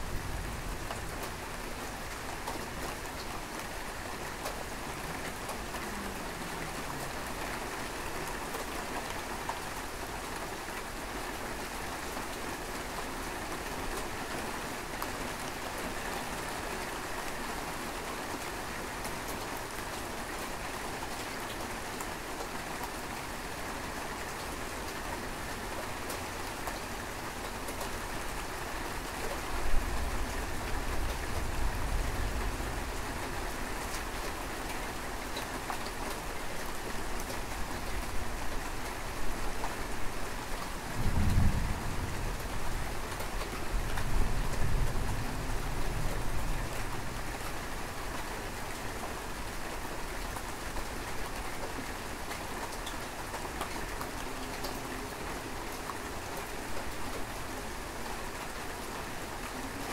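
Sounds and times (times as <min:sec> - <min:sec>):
steady rain falling: 0:00.0 - 0:59.9
thunder rumbling: 0:41.0 - 0:42.8.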